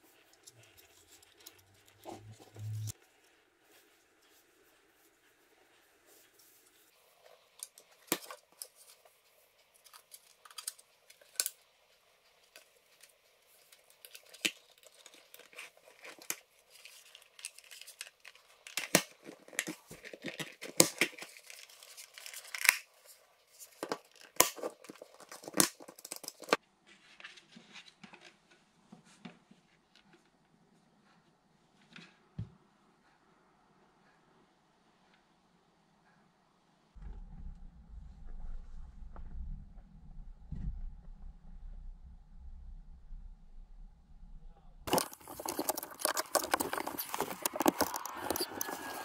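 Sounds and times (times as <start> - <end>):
cable rustling: 0.0 - 29.3, 44.9 - 49.0.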